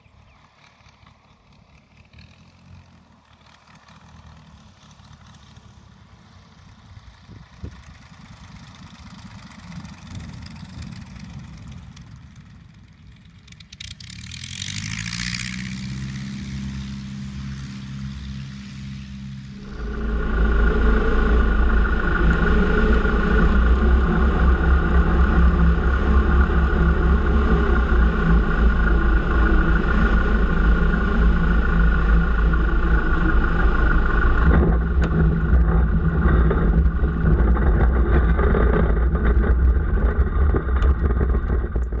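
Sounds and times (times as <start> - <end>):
light aircraft engine and propeller: 0.0 - 42.0
wind rushing: 19.5 - 41.8.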